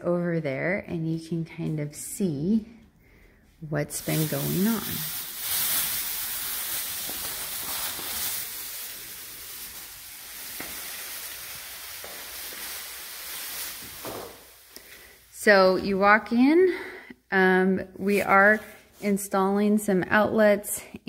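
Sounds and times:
plastic sheeting crinkling: 0:03.9 - 0:15.2.

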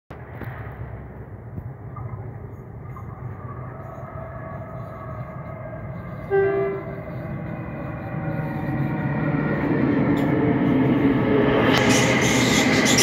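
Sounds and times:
electric train running: 0:02.5 - 0:13.0
two-tone train horn blast: 0:05.9 - 0:07.7.

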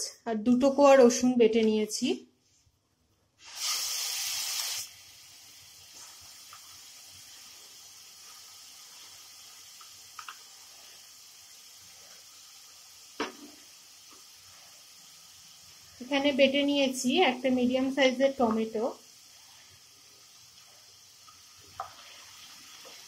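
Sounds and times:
paste sizzling in hot oil: 0:03.4 - 0:23.0
utensil knock: 0:13.2 - 0:13.6.

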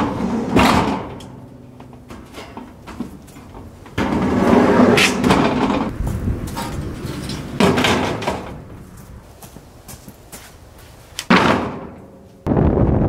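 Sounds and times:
tin roofing sheets scraping and rattling: 0:00.0 - 0:08.7.

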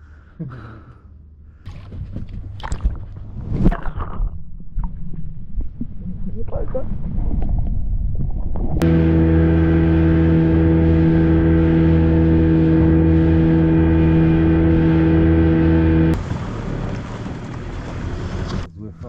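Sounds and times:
boat engine humming: 0:08.8 - 0:18.9.

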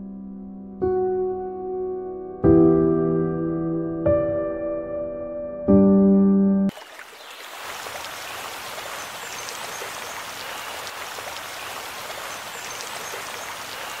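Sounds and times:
splashing falling water: 0:06.7 - 0:14.0.

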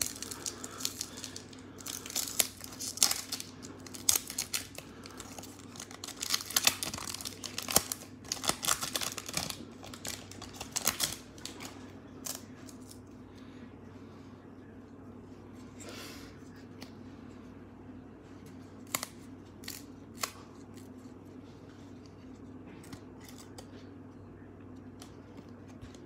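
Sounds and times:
wrapper tearing and crinkling: 0:00.0 - 0:13.0.

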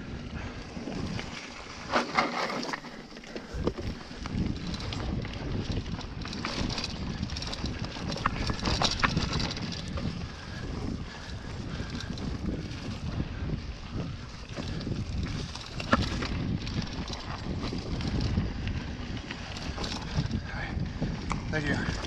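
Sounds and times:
wind rumbling on microphone: 0:00.0 - 0:22.0
bike tyres crunching on stones: 0:00.1 - 0:22.0
bike knocking on rocks: 0:01.9 - 0:10.1, 0:14.6 - 0:18.4.

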